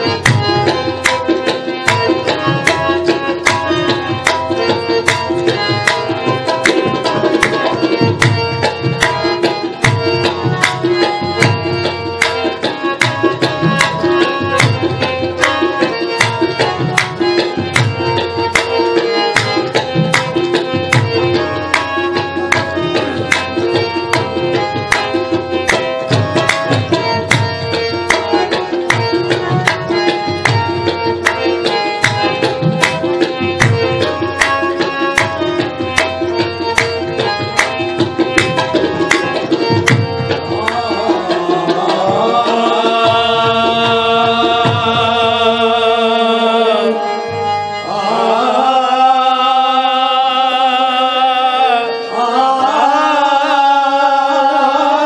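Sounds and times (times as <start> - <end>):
tabla beat: 0.0 - 49.1
person singing long notes: 40.5 - 55.0.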